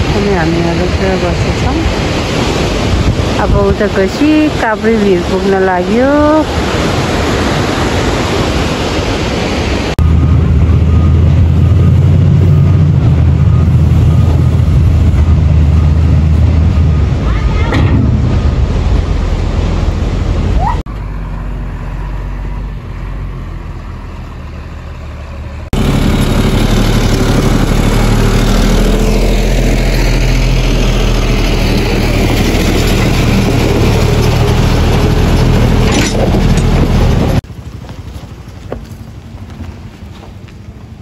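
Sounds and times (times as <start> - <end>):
road and wind noise: 0.0 - 41.0
vehicle engine running at low revs: 10.0 - 17.3, 17.9 - 41.0.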